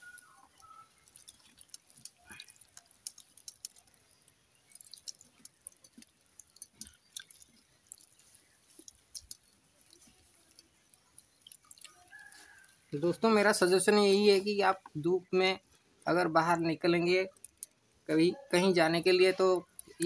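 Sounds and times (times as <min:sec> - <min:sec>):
fingers squelching wet rice: 0:00.0 - 0:14.8.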